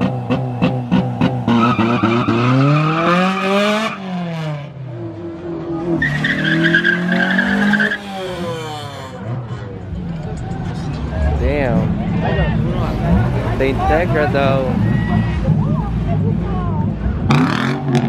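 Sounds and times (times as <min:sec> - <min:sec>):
car engine revving: 0:00.0 - 0:18.0
tyres squealing: 0:06.0 - 0:09.7.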